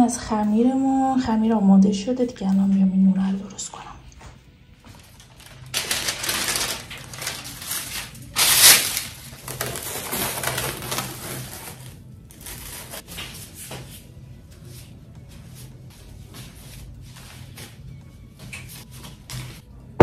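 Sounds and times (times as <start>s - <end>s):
baking paper crinkling: 4.9s - 13.1s
cling film crackling: 5.0s - 11.8s.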